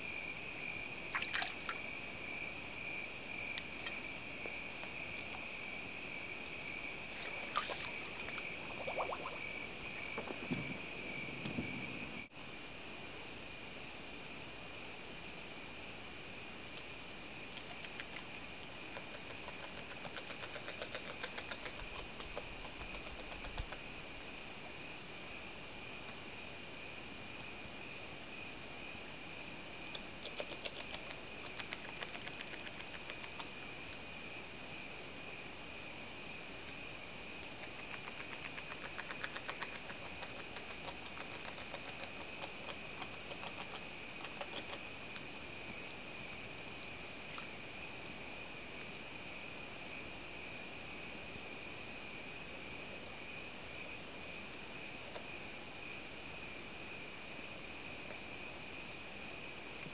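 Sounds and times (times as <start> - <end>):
beaver chewing crunching clicks: 18.9 - 23.8, 29.9 - 33.6, 37.4 - 45.3.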